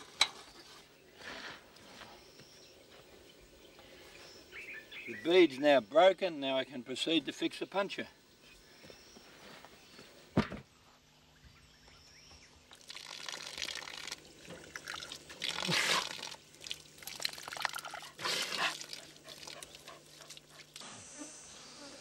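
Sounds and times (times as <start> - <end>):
water pouring from a tap: 12.7 - 19.8
water splashing on hands and ground: 12.7 - 20.7.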